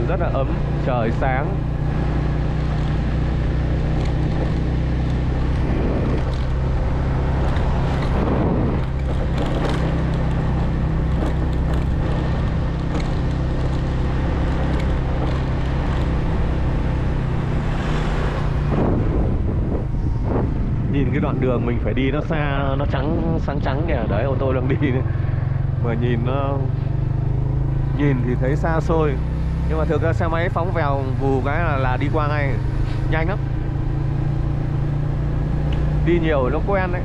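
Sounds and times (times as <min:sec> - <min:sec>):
motorbike engine running: 0:00.0 - 0:20.8, 0:24.1 - 0:37.0
minibus passing: 0:00.0 - 0:20.9
wind noise on microphone: 0:05.4 - 0:13.0, 0:17.5 - 0:24.6.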